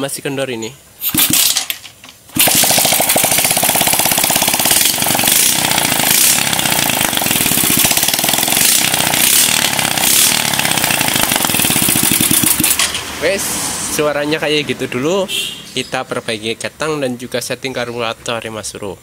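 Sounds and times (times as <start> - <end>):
motorcycle engine clattering: 1.0 - 13.2.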